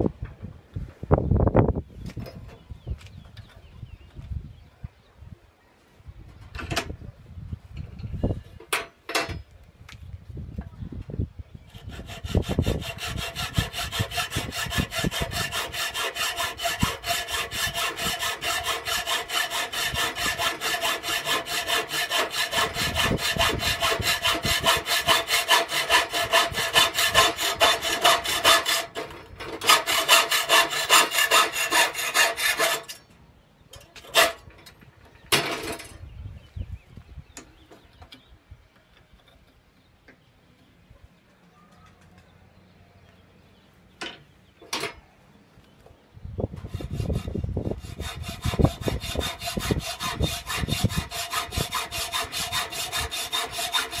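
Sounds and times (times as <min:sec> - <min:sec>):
hacksaw cutting metal tube: 0:11.7 - 0:33.1, 0:34.0 - 0:34.4, 0:46.6 - 0:54.0.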